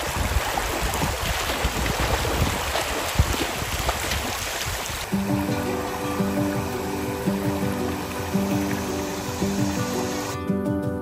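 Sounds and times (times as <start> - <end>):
dog splashing through water: 0.0 - 10.2
background music: 5.1 - 11.0.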